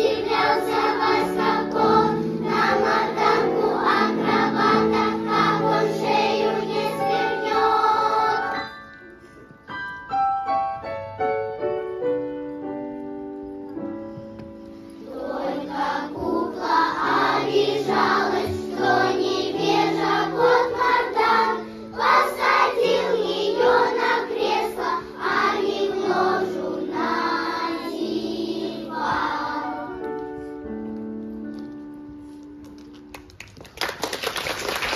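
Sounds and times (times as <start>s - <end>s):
girls choir singing: 0.0s - 8.7s, 15.0s - 30.0s.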